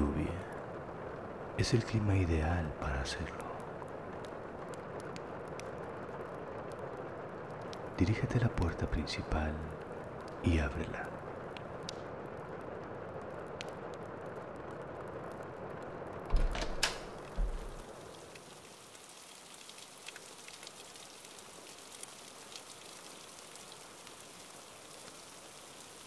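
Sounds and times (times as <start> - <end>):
steady rain falling: 0.0 - 26.0
door click: 16.3 - 17.8
low thump of door: 16.3 - 17.8
scattered drips: 17.2 - 26.0.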